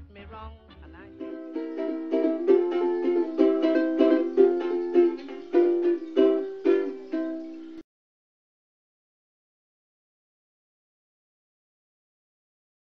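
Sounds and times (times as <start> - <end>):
ukulele strumming: 1.0 - 7.8.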